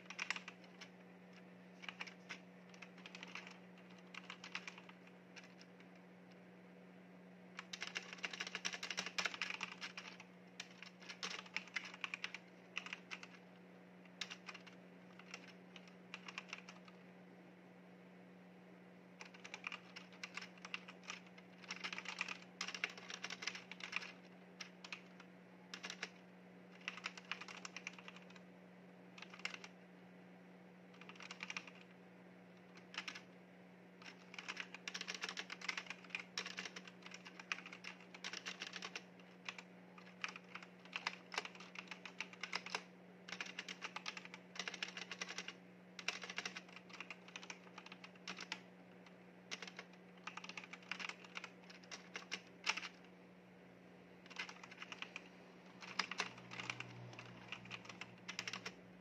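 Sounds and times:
faint low hum: 0.0s - 59.0s.

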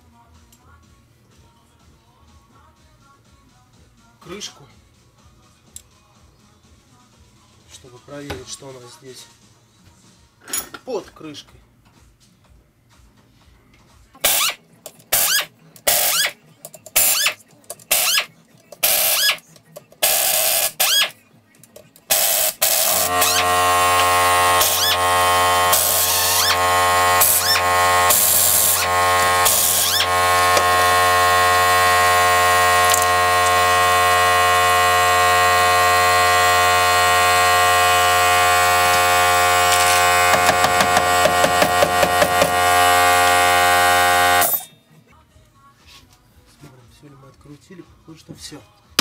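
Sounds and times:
power screwdriver bursts: 14.2s - 19.4s, 20.0s - 21.2s, 22.1s - 44.7s.

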